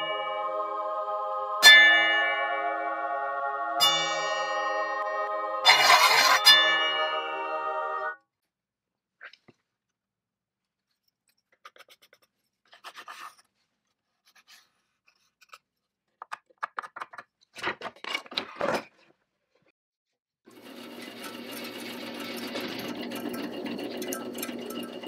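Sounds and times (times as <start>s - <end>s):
pneumatic saw motor clattering: 20.6s - 25.0s.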